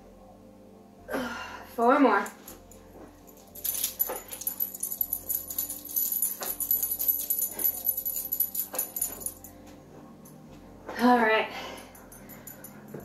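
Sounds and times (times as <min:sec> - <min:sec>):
light metallic jingling: 0:02.2 - 0:09.5, 0:11.8 - 0:13.0.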